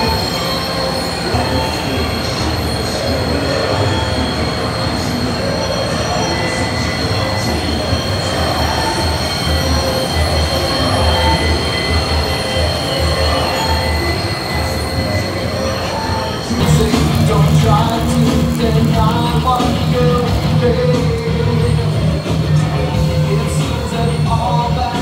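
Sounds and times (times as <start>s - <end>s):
machinery whine: 0.0s - 25.0s
machinery low rumble: 15.5s - 25.0s.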